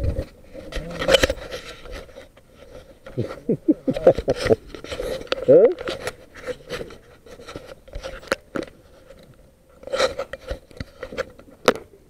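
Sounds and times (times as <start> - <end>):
camera handling noise: 0.2 - 2.4.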